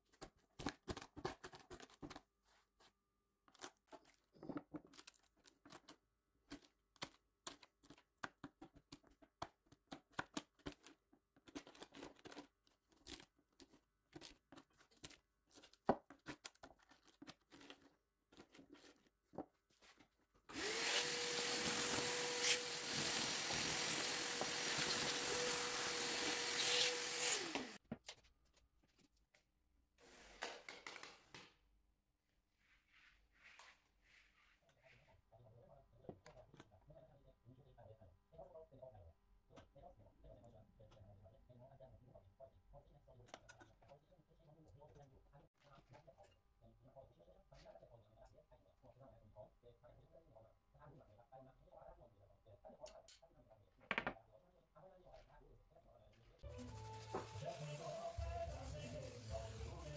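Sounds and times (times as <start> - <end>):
small electric motor running: 20.5 - 27.8.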